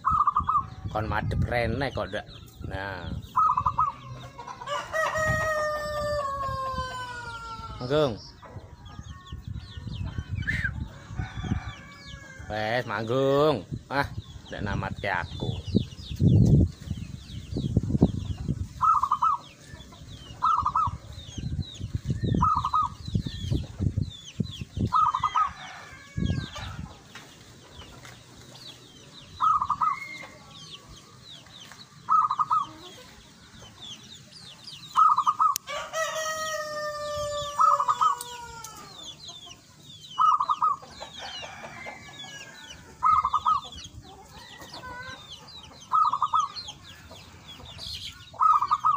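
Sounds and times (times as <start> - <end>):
dove trilled coos: 0.0 - 0.8, 3.3 - 4.2, 18.8 - 19.6, 20.4 - 21.0, 22.4 - 23.1, 29.4 - 30.4, 32.1 - 33.0, 34.9 - 35.7, 37.0 - 39.1, 40.2 - 41.7, 43.0 - 43.9, 44.8 - 46.8, 48.3 - 48.9
small birds chirping: 0.0 - 48.9
rooster crowing: 4.6 - 7.9, 10.9 - 12.5, 25.0 - 26.9, 35.5 - 39.1.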